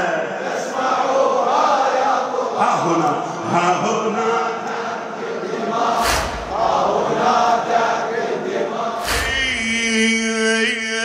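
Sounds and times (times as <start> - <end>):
crowd chanting: 0.0 - 11.0
chest-beating slaps: 6.0 - 6.8.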